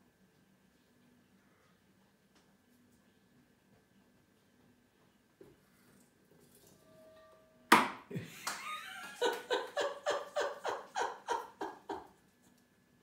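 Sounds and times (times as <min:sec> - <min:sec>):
person laughing: 0:08.1 - 0:12.2.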